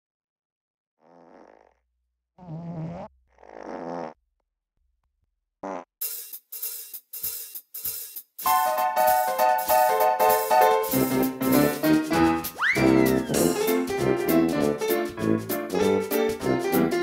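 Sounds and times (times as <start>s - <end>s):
comic fart sound effects: 2.4s - 4.2s, 5.6s - 5.9s, 12.2s - 13.6s
keyboard music: 8.5s - 17.0s.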